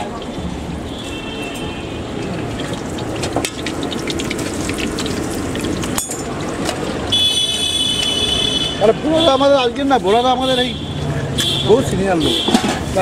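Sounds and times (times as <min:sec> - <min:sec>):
fritters sizzling in hot oil: 0:00.0 - 0:10.3.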